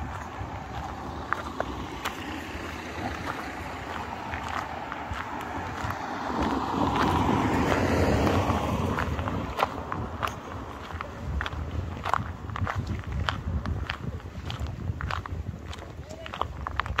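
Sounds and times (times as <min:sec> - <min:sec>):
van driving past: 0:00.0 - 0:12.0
footsteps on gravel: 0:00.0 - 0:17.0.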